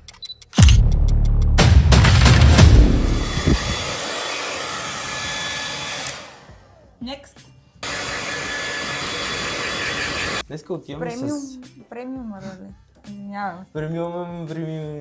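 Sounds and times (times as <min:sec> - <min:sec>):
music with low boom: 0:00.6 - 0:03.8
electric motor blowing: 0:02.8 - 0:06.9, 0:07.8 - 0:10.4.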